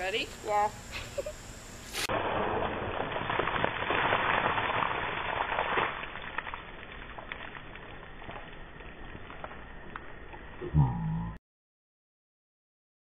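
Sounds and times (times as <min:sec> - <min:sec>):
water pouring and splashing: 0:01.9 - 0:10.6
water dripping: 0:03.4 - 0:10.5.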